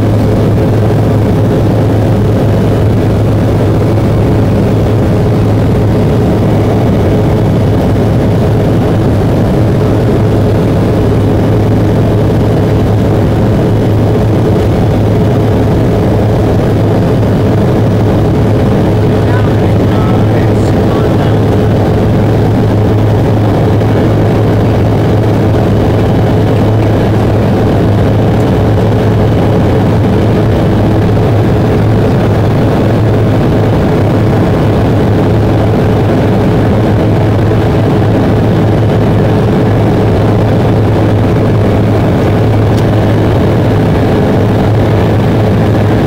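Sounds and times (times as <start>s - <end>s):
cabin airflow: 0.0s - 46.0s
constant hum: 0.0s - 46.0s
jet engines droning: 0.0s - 46.0s.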